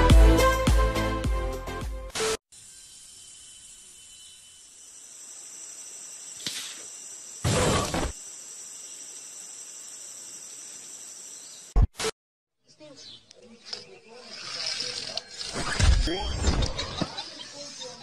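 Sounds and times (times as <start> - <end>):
high insect buzz: 2.5 - 11.8.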